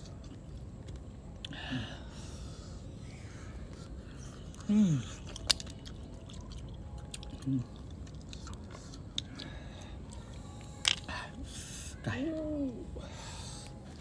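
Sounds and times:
person chewing crunchy food: 3.5 - 11.1.

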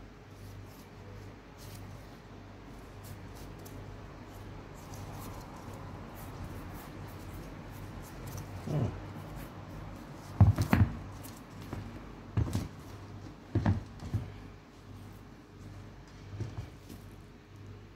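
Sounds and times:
sneaker handling rustles: 2.8 - 17.3
sneaker thumping on floor: 10.3 - 12.8, 13.5 - 14.4.

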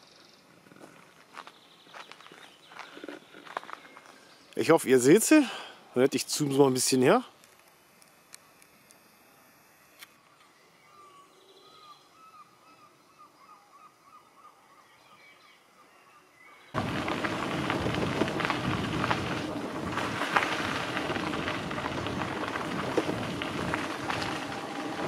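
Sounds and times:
tyres crunching on gravel: 0.6 - 5.2, 16.8 - 25.0
faint bird calls: 10.3 - 16.7
wind on microphone: 16.8 - 25.0.

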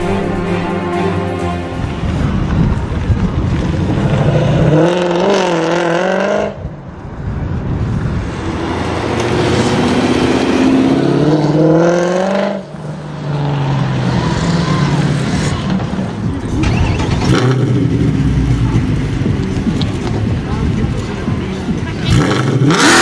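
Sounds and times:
car engine revving: 8.3 - 23.0.

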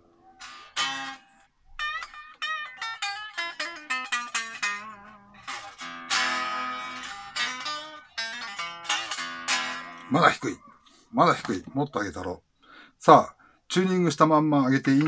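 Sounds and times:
electric guitar notes and chords: 0.2 - 10.1.

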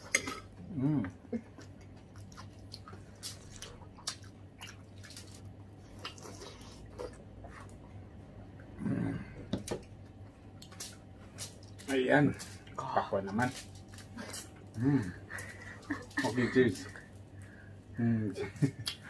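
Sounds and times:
crisp bites and chewing: 2.2 - 6.4
person humming: 8.8 - 9.4.

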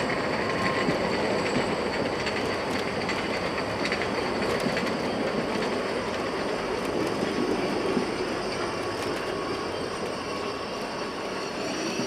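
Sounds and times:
train wheels rumbling on rail: 0.0 - 12.0
high wheel squeal: 8.0 - 12.0.

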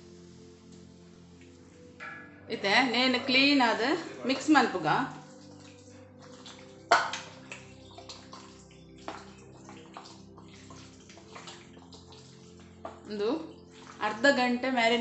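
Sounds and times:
wet slaps and smacks: 5.2 - 13.1
hand squelching raw chicken in marinade: 5.2 - 14.2.

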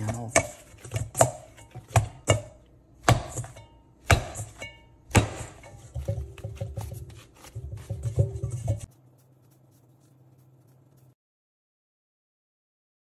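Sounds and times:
dough kneaded in metal bowl: 0.0 - 11.2.

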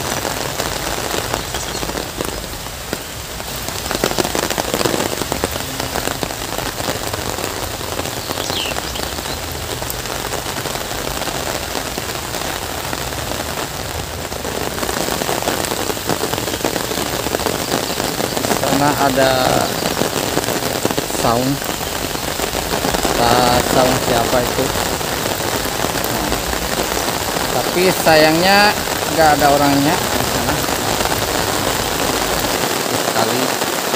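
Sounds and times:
heavy rain on leaves and water: 0.0 - 33.9.

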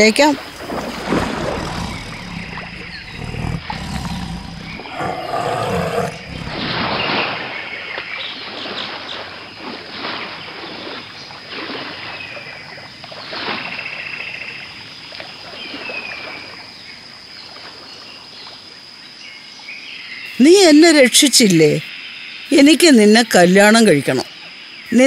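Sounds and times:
water splashing: 0.0 - 16.7.

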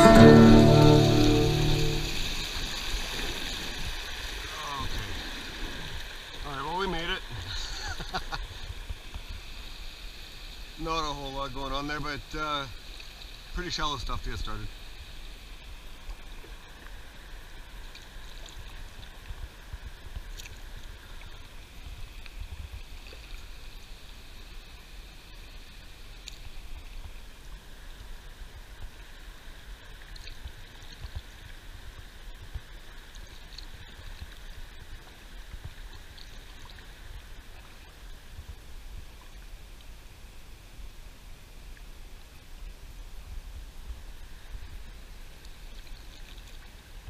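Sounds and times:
river water rushing: 0.0 - 7.5.

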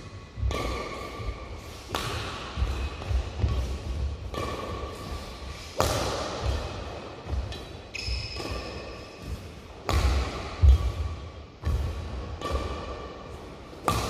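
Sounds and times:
racket striking shuttlecock: 0.1 - 14.0
shoe squeaks: 7.5 - 9.3.

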